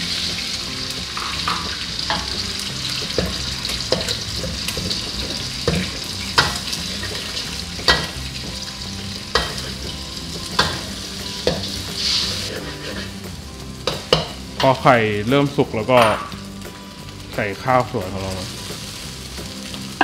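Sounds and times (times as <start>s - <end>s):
metal spatula scraping a wok: 0.0s - 14.8s
eggs sizzling in hot oil: 0.0s - 20.0s.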